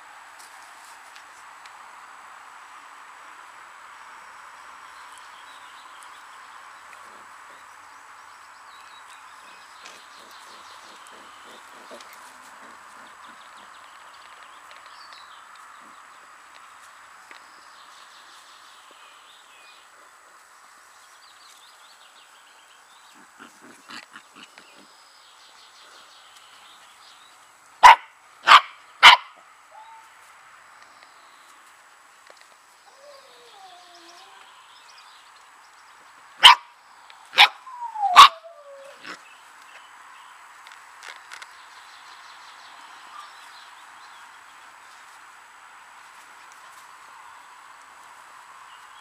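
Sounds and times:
puppies barking: 27.8 - 30.0, 36.4 - 36.7, 37.4 - 39.2.

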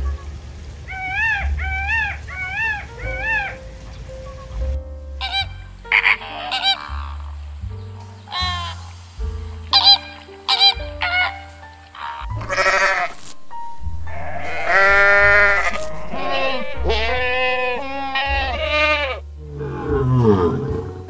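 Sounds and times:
flamingos honking: 0.0 - 21.0
light background music: 0.0 - 21.0
low falling call: 0.0 - 21.0
goat bleating: 5.2 - 7.2, 12.0 - 13.2, 14.1 - 20.9.

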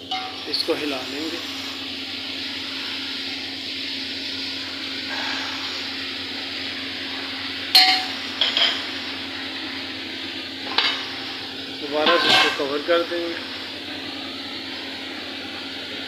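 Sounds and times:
gas stove hiss: 0.0 - 16.0
spoon clanging against pot: 7.8 - 8.7.

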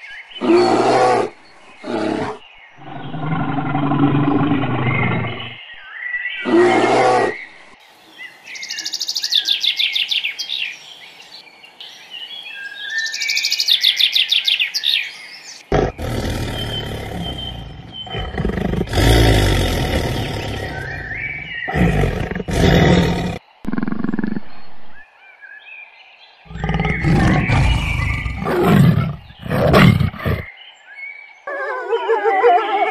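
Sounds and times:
large animal roaring: 0.4 - 5.6, 6.4 - 7.4, 15.7 - 24.5, 26.5 - 30.5
bird-like chirping trills: 8.2 - 25.6, 26.4 - 31.6.

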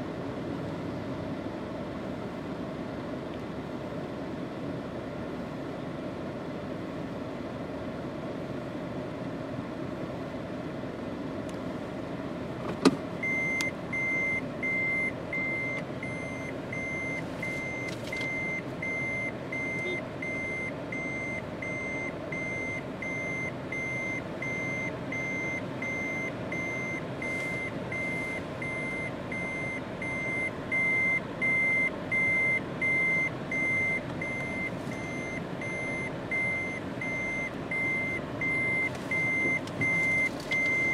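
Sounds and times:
engine running: 0.0 - 40.9
reverse warning beeper: 13.2 - 40.9.

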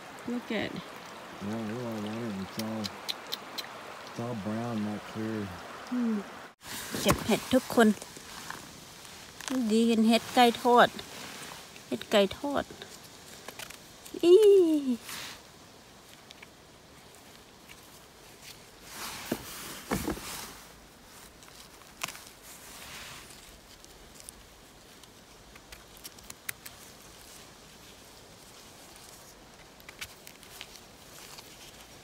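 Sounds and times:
twigs snapping: 1.9 - 4.1, 8.0 - 9.7, 12.9 - 14.5, 21.3 - 22.4, 23.4 - 27.2, 29.0 - 31.9
footsteps through undergrowth: 6.6 - 12.0.

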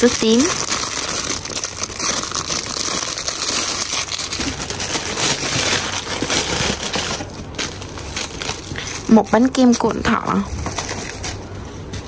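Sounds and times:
packaging crinkling: 0.0 - 11.6.

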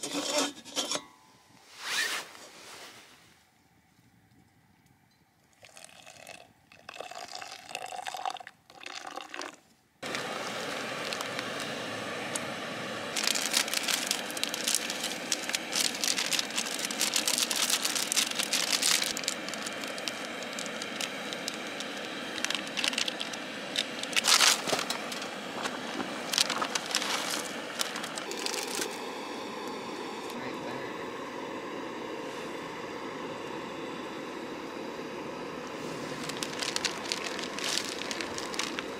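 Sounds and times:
camp stove burner hissing: 0.0 - 2.8, 10.0 - 38.9
water pouring into a mug: 5.6 - 9.6
sharp crackles and clicks: 10.0 - 12.5, 13.2 - 29.0, 35.9 - 38.9.

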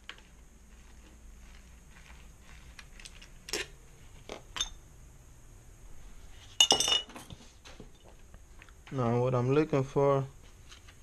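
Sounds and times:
small metal parts clinking: 6.6 - 7.4.

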